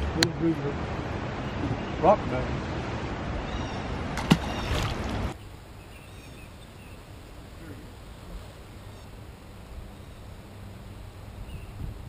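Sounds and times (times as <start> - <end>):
river rumble: 0.0 - 12.0
faint bird chirps: 3.4 - 4.8, 5.4 - 7.8, 11.4 - 11.9.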